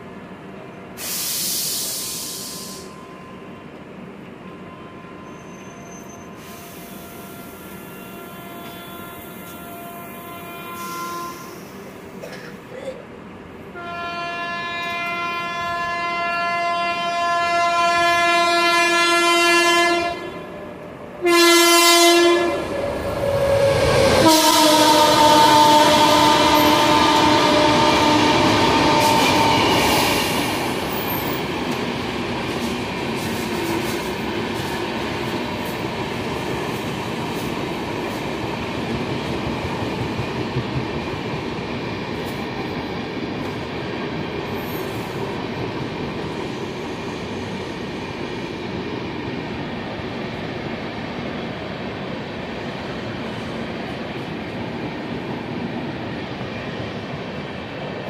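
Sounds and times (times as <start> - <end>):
train coaches rolling on rails: 0.0 - 58.0
locomotive horn: 6.7 - 11.7, 13.7 - 30.0.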